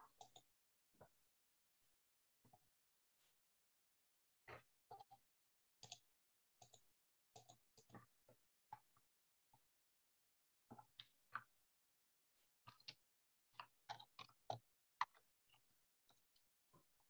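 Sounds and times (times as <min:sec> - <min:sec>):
faint irregular clicks: 0:05.8 - 0:06.0, 0:06.6 - 0:06.8, 0:13.6 - 0:16.4.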